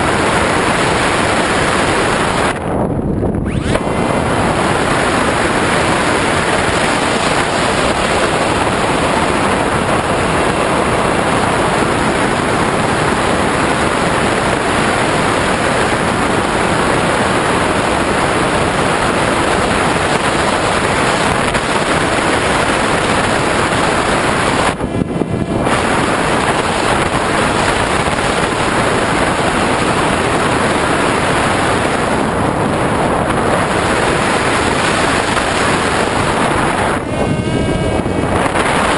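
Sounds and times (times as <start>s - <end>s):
loud rushing wind noise: 0.0s - 38.9s.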